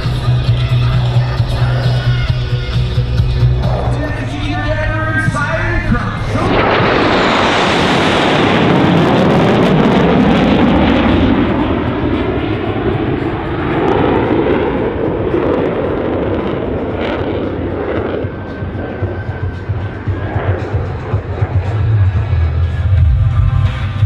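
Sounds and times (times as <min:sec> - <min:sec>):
fighter jets passing: 0:00.0 - 0:24.0.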